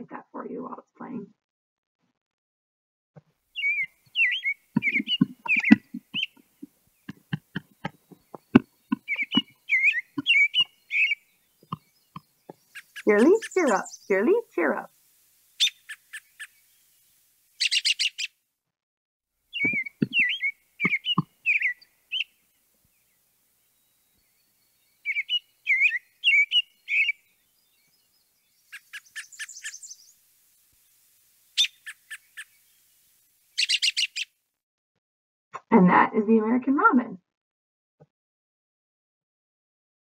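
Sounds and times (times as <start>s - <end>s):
robin singing warbled whistles: 3.6s - 6.4s, 7.3s - 14.6s, 15.6s - 16.7s, 17.6s - 18.3s, 19.5s - 22.3s, 23.8s - 30.2s, 31.6s - 32.6s, 33.6s - 34.3s.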